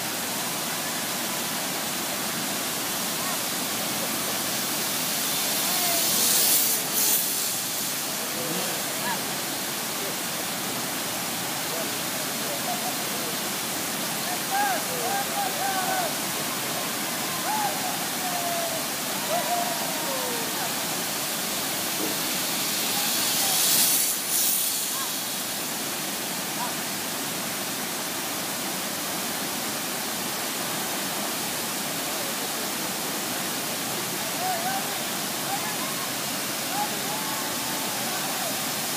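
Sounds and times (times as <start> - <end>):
waterfall rushing: 0.0 - 38.9
zip-line trolley whirring: 5.1 - 8.1, 22.2 - 25.5.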